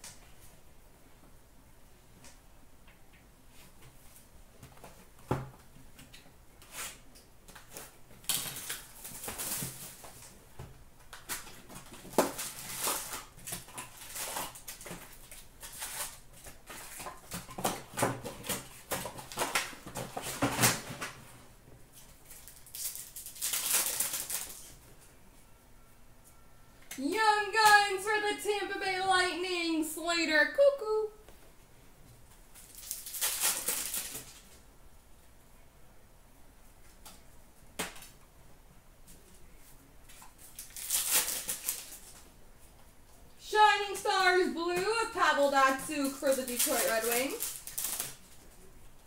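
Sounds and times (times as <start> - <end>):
foil wrappers crinkling: 7.6 - 10.3, 11.2 - 21.2, 22.0 - 24.8, 32.5 - 34.6, 40.2 - 42.2, 44.8 - 48.6.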